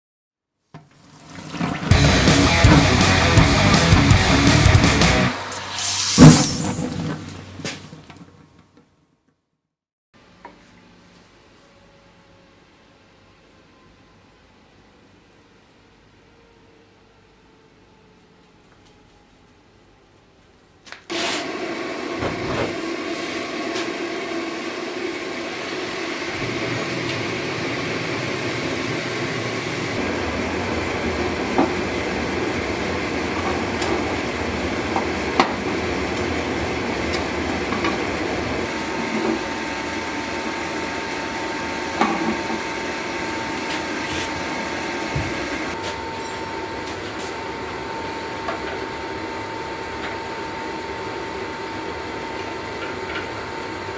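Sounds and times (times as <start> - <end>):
gas forge blower rushing: 1.5 - 7.2, 21.1 - 53.9
thin high whine: 1.9 - 7.0, 25.0 - 49.0.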